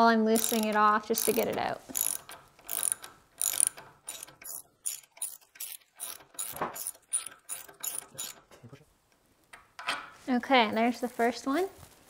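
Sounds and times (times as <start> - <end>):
ratchet wrench clicking: 0.4 - 8.5.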